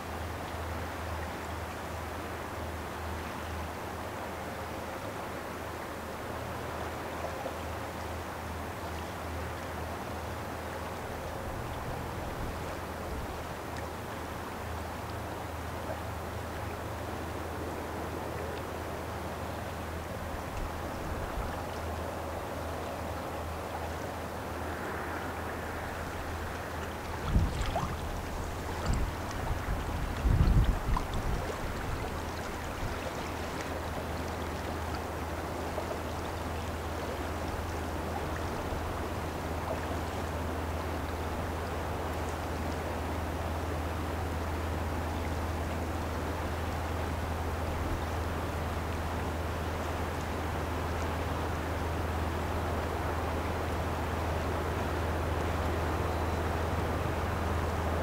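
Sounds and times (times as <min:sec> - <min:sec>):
river water hiss: 0:00.0 - 0:58.0
wind: 0:00.0 - 0:58.0
distant ship engine drone: 0:21.6 - 0:30.2
wind buffeting microphone: 0:24.6 - 0:33.5.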